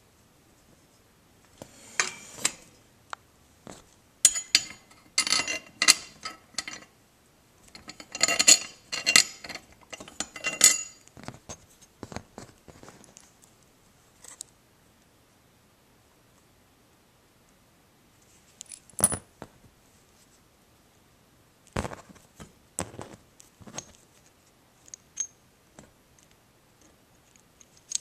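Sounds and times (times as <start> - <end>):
metal hardware clinking and rattling: 4.2 - 6.9, 7.7 - 11.0, 18.6 - 19.3.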